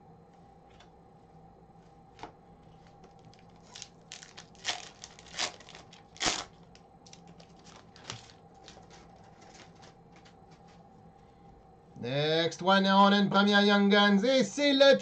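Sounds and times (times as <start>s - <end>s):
wrapper tearing and crinkling: 3.2s - 10.7s.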